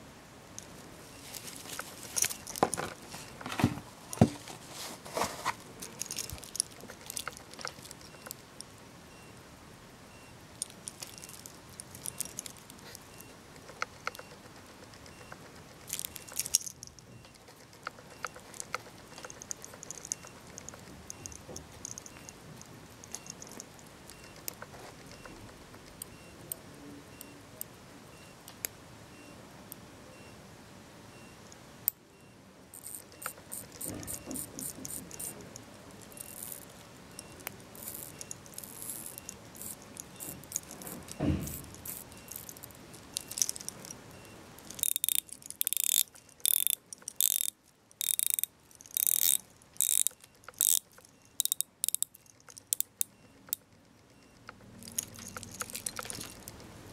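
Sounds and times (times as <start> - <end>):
watch bezel ratcheting clicks: 32.8 - 35.4, 36.1 - 43.9, 44.6 - 56.6.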